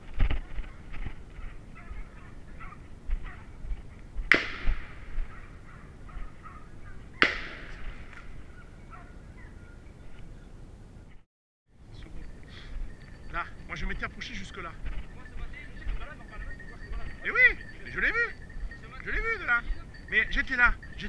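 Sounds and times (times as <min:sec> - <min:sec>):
hounds baying: 0:00.5 - 0:03.6, 0:05.2 - 0:07.8, 0:08.4 - 0:09.8, 0:12.0 - 0:21.0
echoing gunshots: 0:04.3 - 0:06.6, 0:07.2 - 0:08.5.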